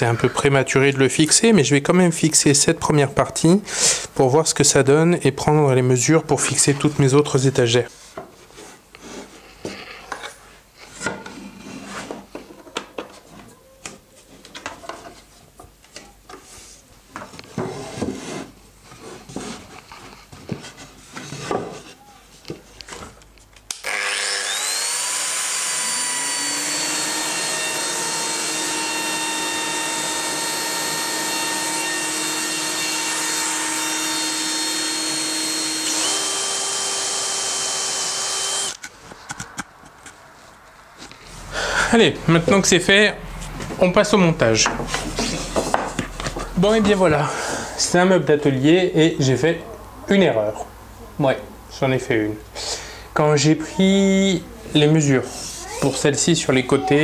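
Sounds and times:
cordless drill whining: 23.8s - 38.8s
wooden panels knocking and rubbing: 44.6s - 47.0s.

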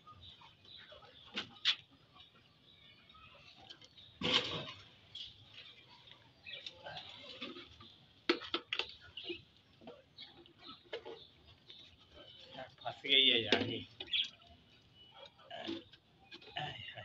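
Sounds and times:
budgies chattering: 8.8s - 17.0s.

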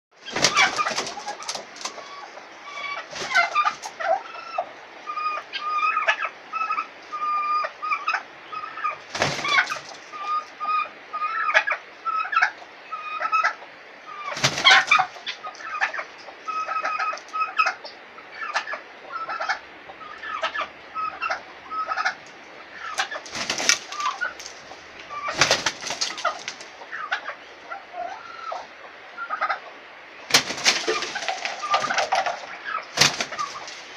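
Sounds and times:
chickens clucking: 0.1s - 33.9s
wing-flapping: 0.2s - 2.1s, 3.0s - 3.9s, 9.1s - 10.0s, 14.3s - 15.1s, 22.9s - 26.7s, 30.3s - 33.9s.

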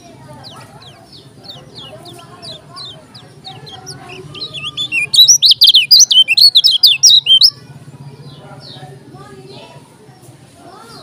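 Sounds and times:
faint bird chirps: 0.1s - 7.6s
bird twittering: 0.2s - 7.5s.

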